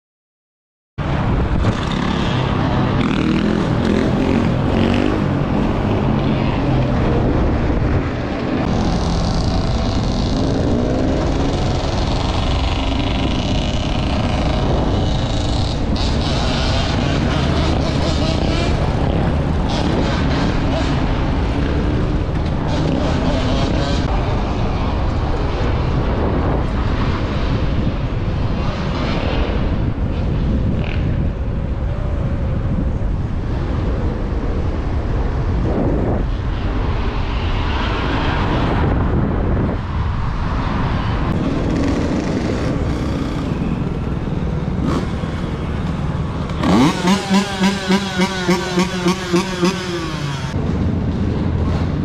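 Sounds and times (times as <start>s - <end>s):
city traffic: 1.0s - 52.0s
wind on microphone: 1.0s - 52.0s
dirt bike engine revving: 44.6s - 45.8s, 46.4s - 50.6s.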